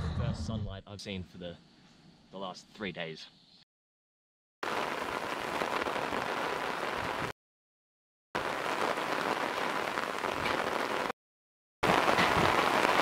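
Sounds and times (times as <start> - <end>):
steady rain falling: 4.6 - 7.3, 8.4 - 11.1, 11.8 - 13.0.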